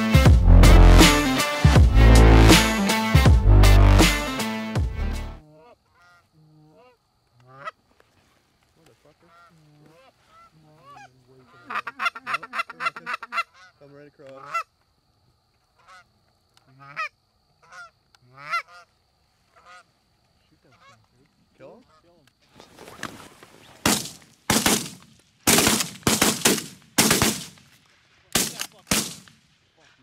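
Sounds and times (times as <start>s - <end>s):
goose honking and clucking: 5.6s - 7.8s, 9.2s - 14.7s, 15.8s - 18.9s, 19.5s - 20.0s, 20.6s - 21.1s.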